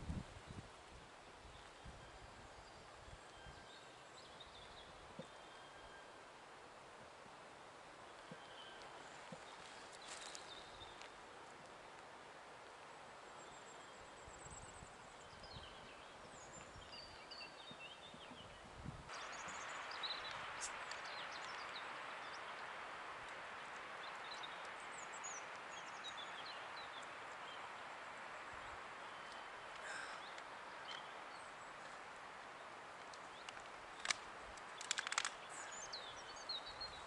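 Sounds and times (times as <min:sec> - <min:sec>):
wind through trees: 0:00.0 - 0:37.0
songbirds chirping: 0:00.4 - 0:37.0
sharp clicks: 0:33.0 - 0:35.4.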